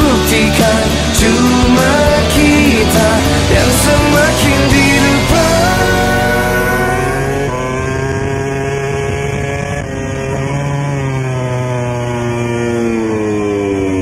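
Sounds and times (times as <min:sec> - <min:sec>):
engine running: 0:00.0 - 0:14.0.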